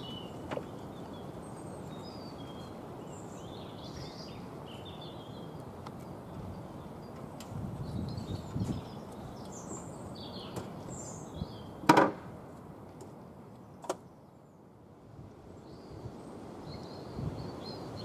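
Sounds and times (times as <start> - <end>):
small birds chirping: 0.0 - 11.8, 13.5 - 18.0
outdoor background noise: 0.0 - 18.0
loud sharp knock: 11.9 - 12.2.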